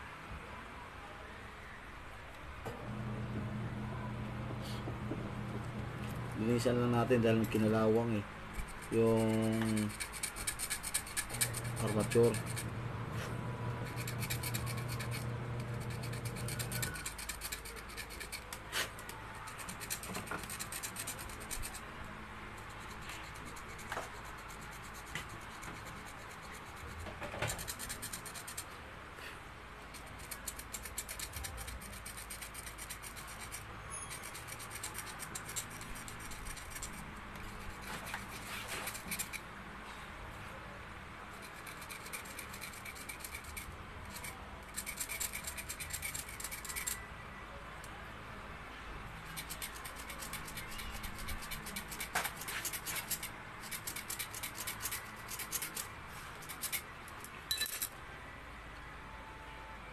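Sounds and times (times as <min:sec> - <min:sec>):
metal tool scraping metal: 0:05.8 - 0:08.0, 0:08.6 - 0:21.8, 0:29.9 - 0:39.4, 0:41.4 - 0:47.0, 0:49.2 - 0:58.0.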